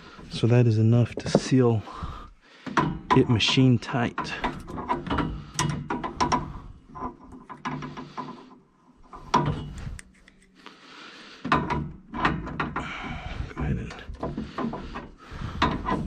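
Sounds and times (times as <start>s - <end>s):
metallic clicks of tool on fitting: 9.7s - 10.7s.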